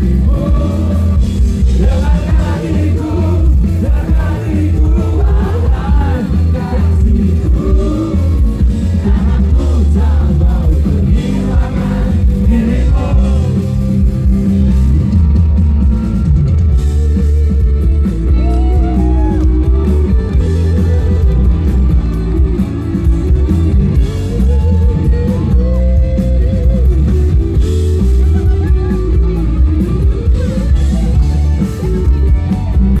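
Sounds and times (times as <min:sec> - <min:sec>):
person singing: 0:00.0 - 0:13.8
rock band playing live: 0:00.0 - 0:33.0.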